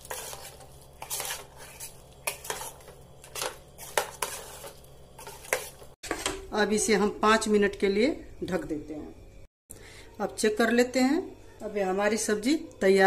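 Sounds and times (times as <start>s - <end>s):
metal spoon stirring in metal pot: 0.0s - 6.3s.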